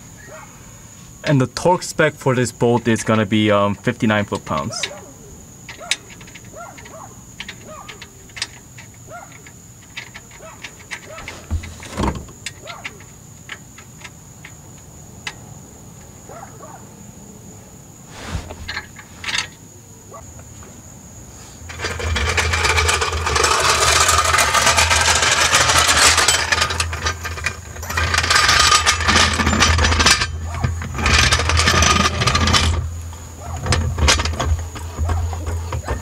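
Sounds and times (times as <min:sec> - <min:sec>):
rough rattling noise: 0:05.6 - 0:14.6, 0:18.1 - 0:19.6, 0:21.6 - 0:36.0.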